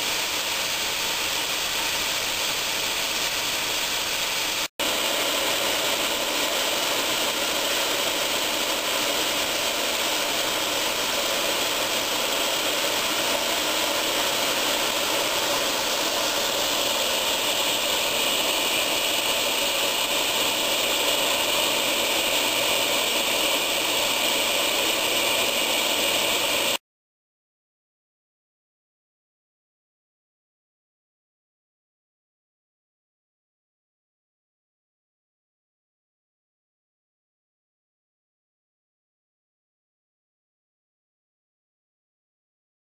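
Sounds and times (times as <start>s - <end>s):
centrifuge whirring: 0.6s - 26.8s.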